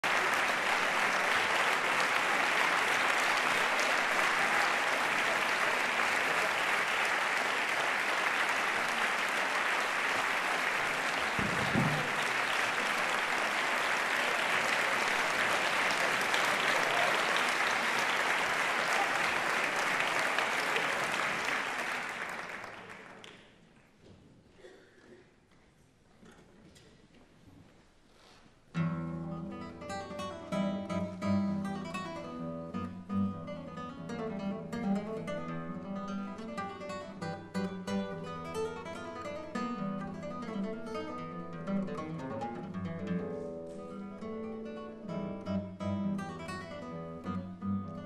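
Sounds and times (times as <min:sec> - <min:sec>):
audience applauding: 0:00.0 - 0:23.9.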